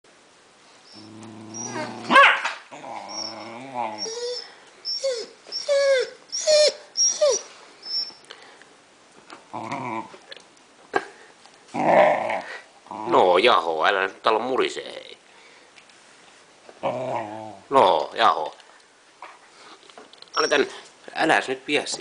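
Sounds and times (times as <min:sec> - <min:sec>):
puppy growling: 0:00.9 - 0:07.4, 0:09.5 - 0:10.4, 0:11.7 - 0:13.3, 0:16.8 - 0:17.7
puppy whining cries: 0:00.9 - 0:08.2, 0:20.4 - 0:20.8
puppy yelp: 0:00.9 - 0:08.2, 0:20.4 - 0:20.7.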